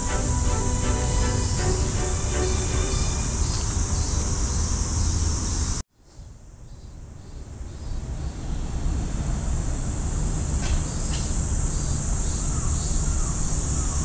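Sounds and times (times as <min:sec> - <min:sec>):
high-pitched insect chorus: 0:00.0 - 0:05.8, 0:09.3 - 0:14.0
low outdoor rumble: 0:00.0 - 0:05.8.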